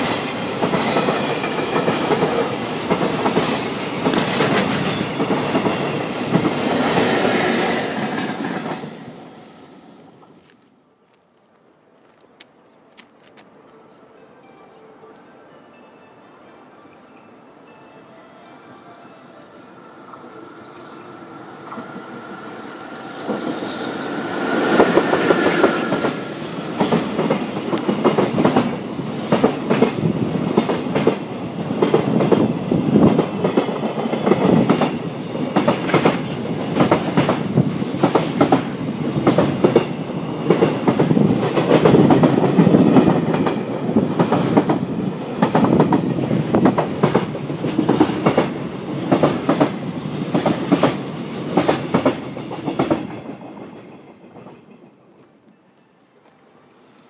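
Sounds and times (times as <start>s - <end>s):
electric locomotive passing: 0.0s - 10.6s, 13.5s - 57.0s
train wheels clickety-clack: 0.0s - 10.6s, 22.6s - 55.5s.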